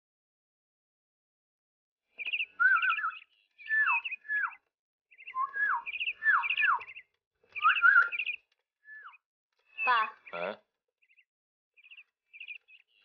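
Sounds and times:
songbird chirping and whistling: 2.1s - 10.4s, 11.0s - 13.0s.

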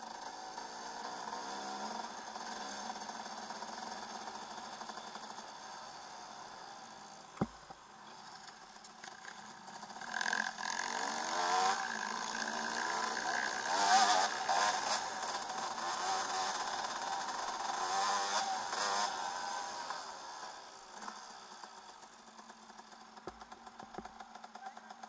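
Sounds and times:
motorbike engine revving: 9.7s - 21.2s.

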